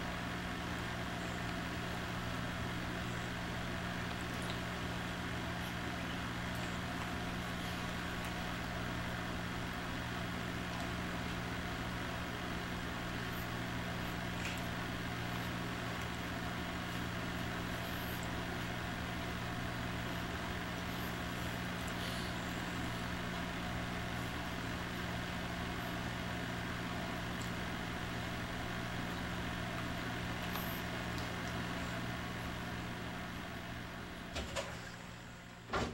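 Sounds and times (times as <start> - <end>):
low hum and hiss: 0.0 - 35.9.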